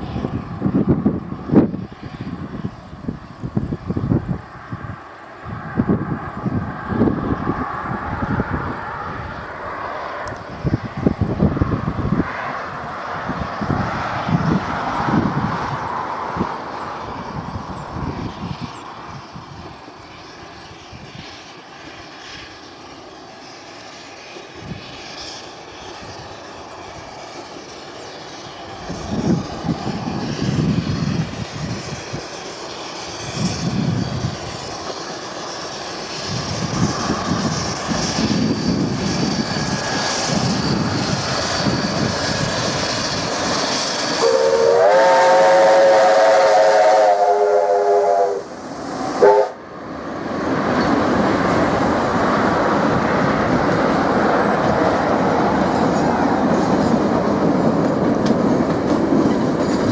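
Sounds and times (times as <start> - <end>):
steam locomotive exhaust chuffs: 13.4 - 49.7
train wheels clacking on rails: 22.4 - 45.3, 50.4 - 59.9
steam whistle: 44.2 - 48.5, 49.2 - 49.6.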